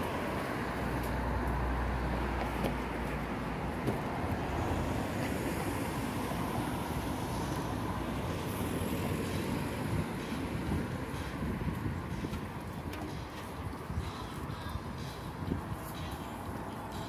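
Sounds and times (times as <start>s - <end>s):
low rumble of traffic: 0.0s - 17.0s.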